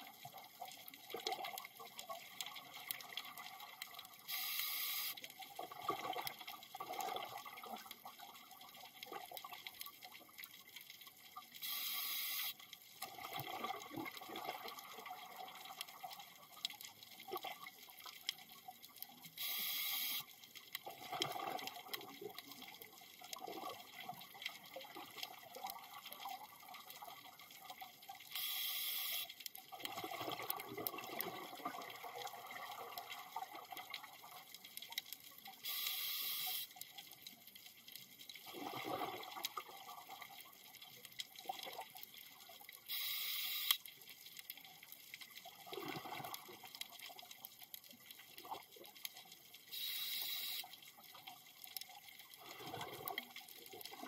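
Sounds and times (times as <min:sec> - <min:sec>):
crackle of clicks: 0:00.0 - 0:54.0.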